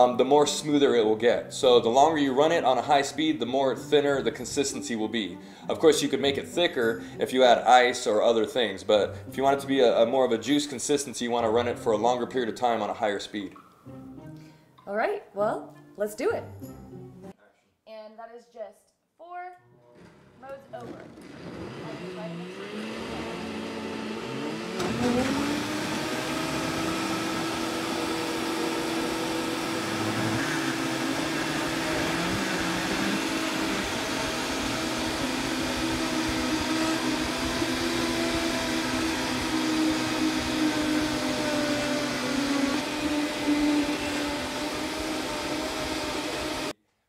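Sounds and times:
blender motor whining: 20.8 - 46.8.

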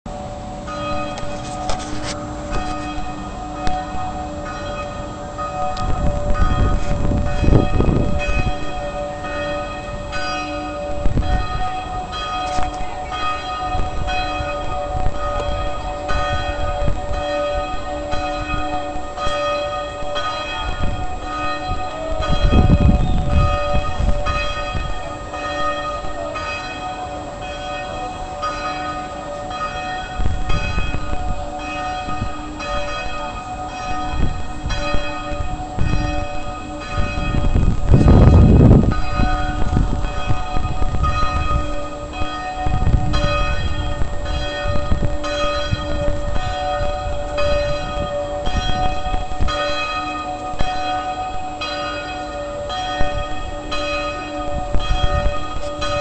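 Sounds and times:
church bells pealing: 0.1 - 56.0.

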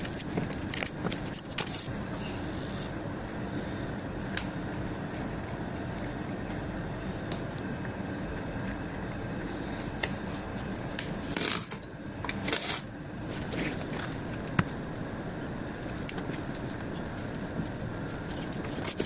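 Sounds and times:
cardboard rustling and ticking: 0.0 - 1.9, 16.0 - 19.0.

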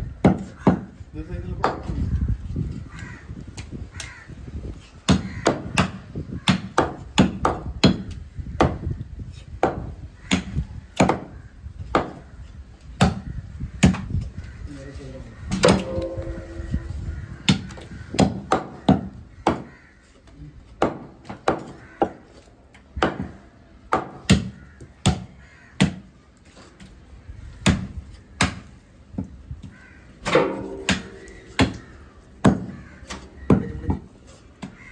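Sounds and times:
cleaver chopping on wooden block: 0.2 - 1.0, 5.1 - 8.9, 9.6 - 12.2, 13.0 - 13.2, 17.5 - 19.7, 20.8 - 22.2, 23.0 - 26.1, 27.6 - 29.3, 30.2 - 34.8.

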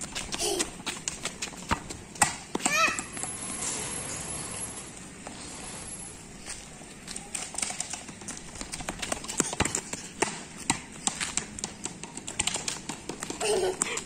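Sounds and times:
running footsteps on concrete: 0.0 - 3.5, 6.4 - 14.0.

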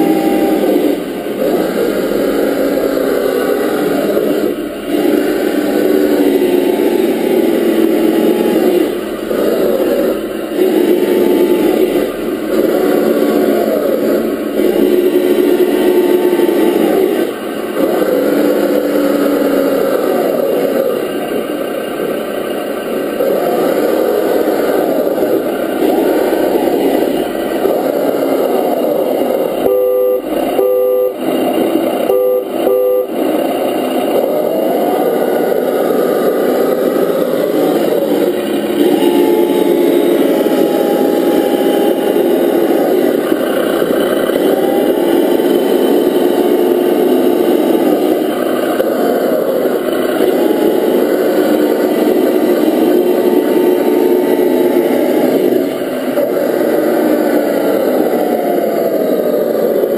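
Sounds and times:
simulated engine sound: 0.0 - 59.9
two-note horn toots: 29.6 - 31.3, 32.0 - 33.3.

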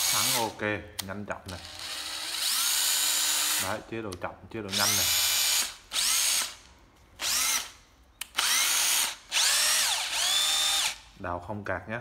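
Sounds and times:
cordless drill motor whining: 1.6 - 3.7, 4.8 - 6.6, 7.2 - 7.7, 8.3 - 11.0.

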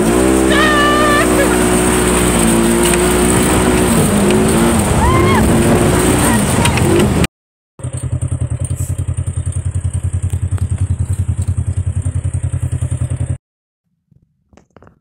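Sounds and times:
engine throbbing steadily: 0.0 - 13.4.

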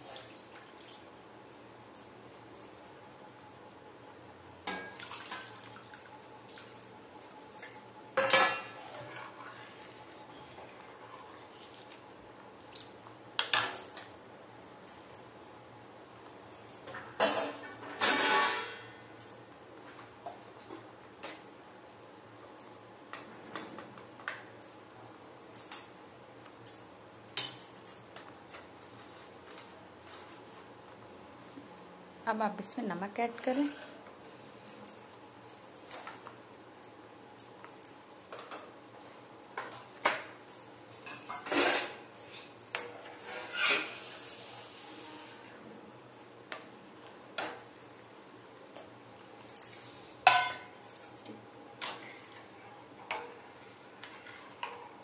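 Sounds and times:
water pouring and splashing: 4.9 - 6.9.

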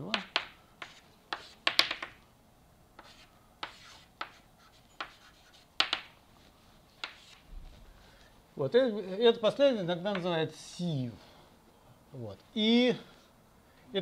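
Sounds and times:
chalk tapping and scraping on blackboard: 0.0 - 2.2, 3.0 - 7.5, 10.1 - 10.4.

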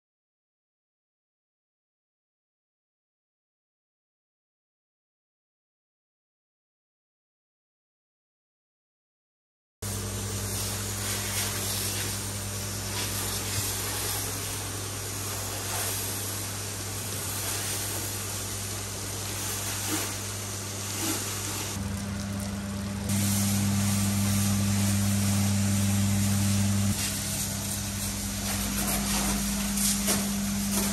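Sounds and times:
pressure washer spray hiss: 9.8 - 21.8, 23.0 - 30.9
washer pump hum: 9.8 - 30.9.

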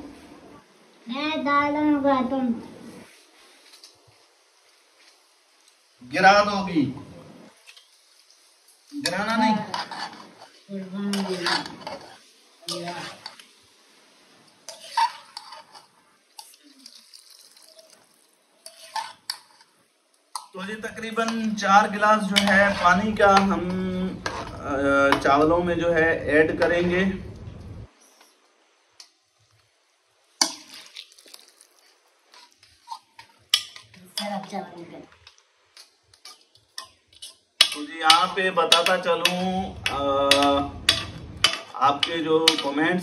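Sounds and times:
metal spoon scraping a pot: 9.0 - 13.4, 14.7 - 17.8, 18.6 - 19.7, 22.3 - 25.2, 32.3 - 34.3, 35.8 - 42.8
water pouring into pot: 16.4 - 19.2, 30.3 - 32.7
steel utensils knocking: 37.6 - 42.8.

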